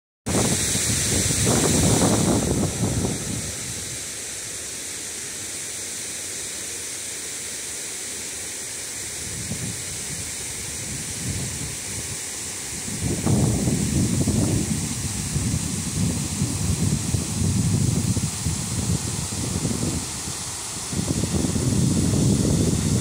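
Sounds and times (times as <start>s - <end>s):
wind buffeting microphone: 0.3s - 4.0s, 9.3s - 12.2s, 12.8s - 23.0s
creek running over rocks: 1.1s - 23.0s.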